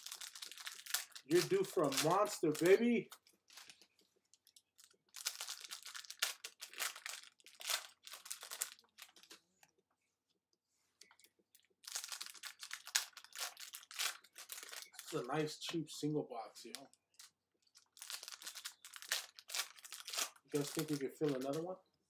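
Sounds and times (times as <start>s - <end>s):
cards rustling and crinkling: 0.0s - 9.6s, 11.0s - 15.8s, 16.6s - 21.7s.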